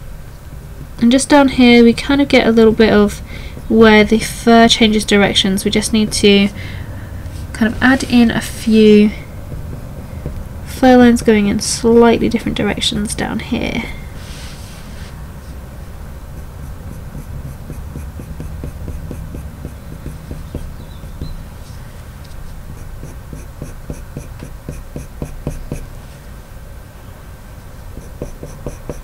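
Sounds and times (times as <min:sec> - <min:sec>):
pencil scratching on paper: 0:02.9 - 0:04.7, 0:05.7 - 0:06.5, 0:09.0 - 0:11.4, 0:16.3 - 0:21.6, 0:22.5 - 0:26.0, 0:27.9 - 0:29.0.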